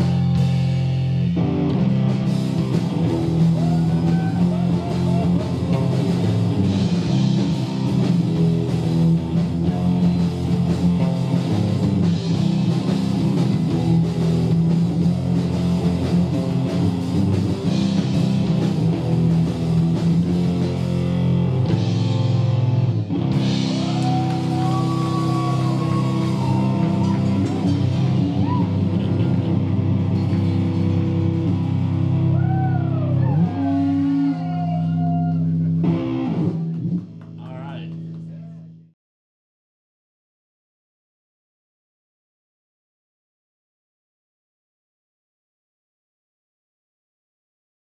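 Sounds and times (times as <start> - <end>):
lead guitar bending notes: 0.0 - 36.9
rock band playing: 0.0 - 38.2.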